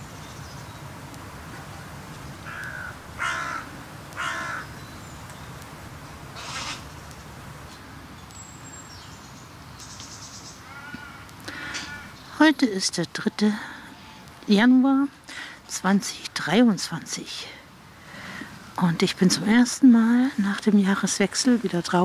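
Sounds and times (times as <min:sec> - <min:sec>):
crows cawing: 0:02.4 - 0:04.8, 0:10.6 - 0:12.2.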